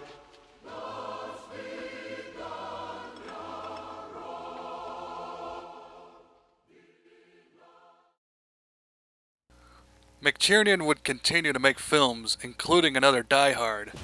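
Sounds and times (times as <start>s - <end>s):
choir singing sustained chords: 0.0s - 8.2s.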